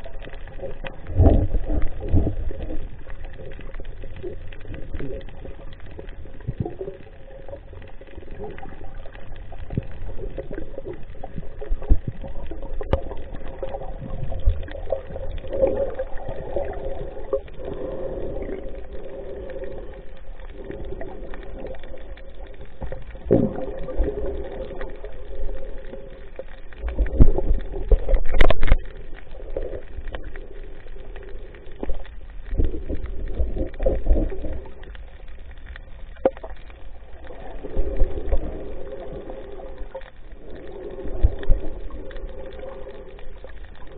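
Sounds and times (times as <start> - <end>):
muffled water sloshing underwater: 0.0 - 43.9.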